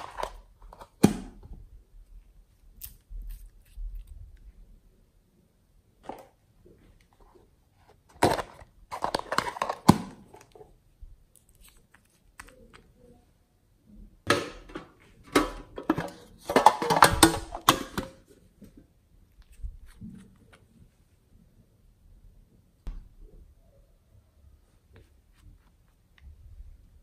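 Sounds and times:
plastic bottles clicking and crinkling: 0.0 - 1.3, 8.1 - 10.6, 14.3 - 18.2.

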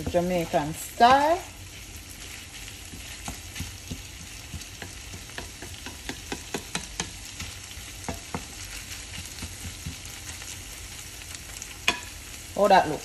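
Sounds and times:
food sizzling in a frying pan: 0.0 - 13.0
wooden spoon knocking a pan: 2.8 - 10.2.

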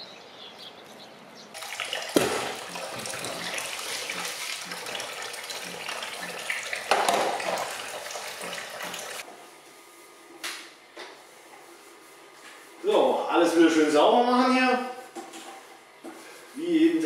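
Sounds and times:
tap water running into sink: 1.6 - 9.2.

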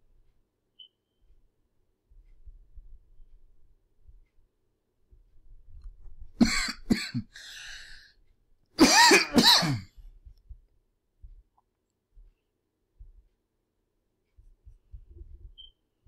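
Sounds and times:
throat clearing: 6.4 - 7.5, 8.8 - 10.0
person coughing: 6.4 - 8.0, 8.8 - 10.0.

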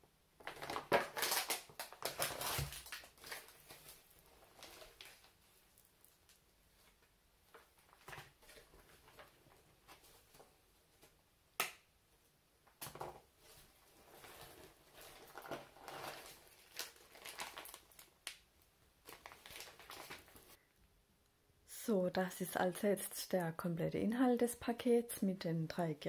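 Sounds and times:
plastic bag and packets crinkling: 0.4 - 10.1, 13.4 - 20.6.

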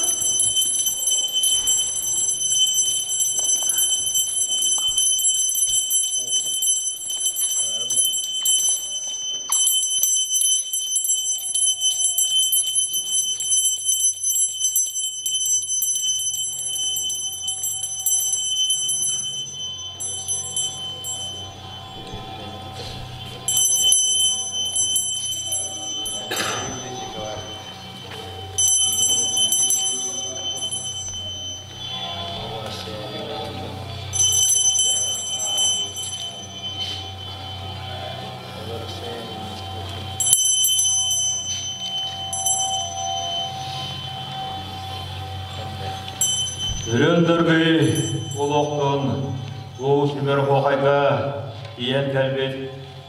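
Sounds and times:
small metal bells jingling: 0.0 - 53.0.

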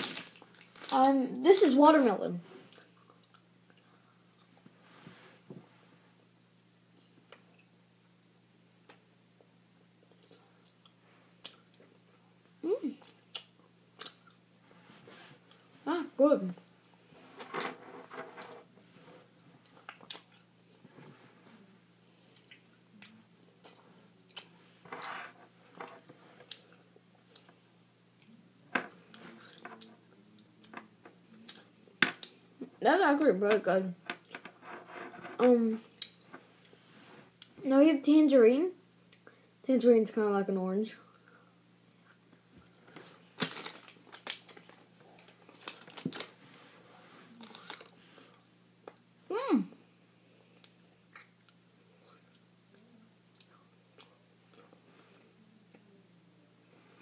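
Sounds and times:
candy packaging crinkling: 0.0 - 1.2, 43.2 - 46.4, 47.4 - 48.0
child chewing gummy candy: 19.7 - 20.5, 42.0 - 46.3, 47.3 - 49.0, 50.6 - 54.8.

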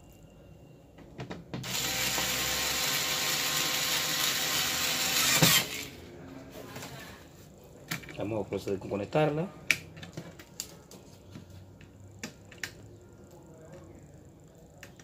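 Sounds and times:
electric screwdriver motor running: 1.6 - 5.9.

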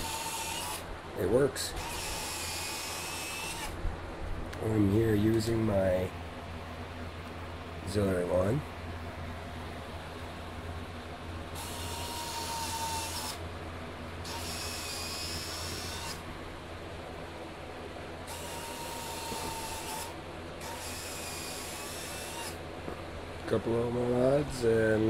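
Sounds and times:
small electric motors whining: 0.0 - 0.9, 1.7 - 3.8, 11.6 - 13.4, 14.2 - 16.2, 18.2 - 22.6
steady low hum: 0.0 - 25.0.

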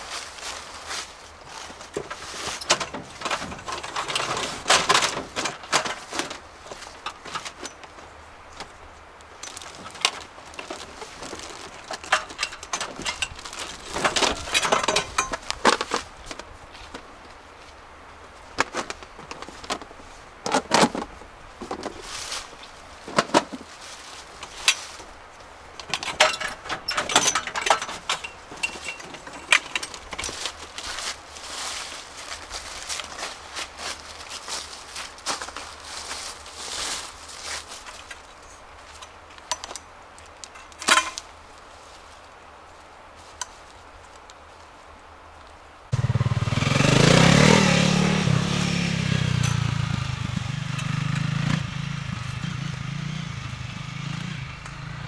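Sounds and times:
rustling: 0.0 - 45.6
clicks and knocks of handling: 1.7 - 8.8, 9.4 - 17.1, 18.6 - 22.0, 25.8 - 31.0, 37.8 - 41.3.

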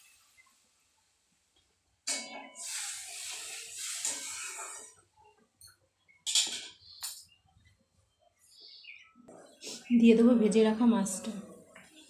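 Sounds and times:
spatula scraping in pan: 2.1 - 5.0.

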